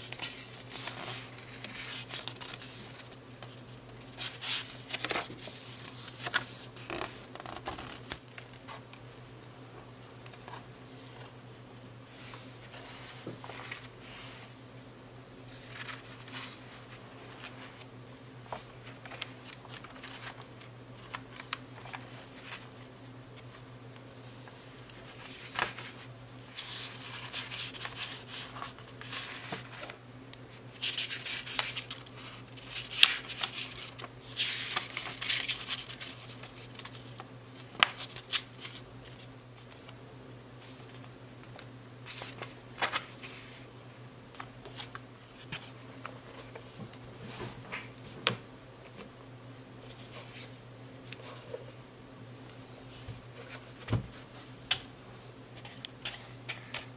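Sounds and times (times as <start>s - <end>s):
paper pages rustling: 0.0s - 8.8s, 12.2s - 14.4s, 15.4s - 17.9s, 18.5s - 22.8s, 24.9s - 40.0s, 40.6s - 43.7s, 44.4s - 47.9s, 55.6s - 56.9s.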